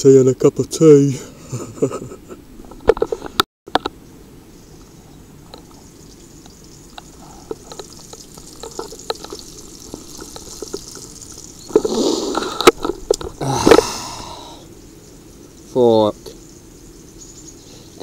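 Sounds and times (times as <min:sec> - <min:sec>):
bacon sizzling in a frying pan: 0:06.0 - 0:11.9
fat spitting pops: 0:07.3 - 0:13.9.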